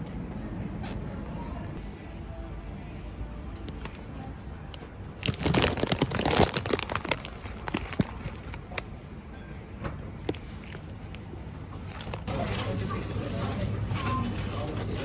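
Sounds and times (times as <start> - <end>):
low background hum: 0.0 - 15.0
crinkling rustling: 5.2 - 8.9, 10.2 - 13.5.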